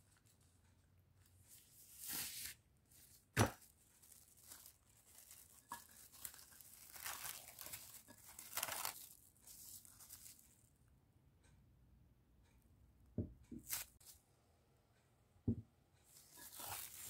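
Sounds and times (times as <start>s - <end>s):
cling film crinkling: 1.9s - 10.7s, 13.6s - 14.1s, 16.1s - 17.0s.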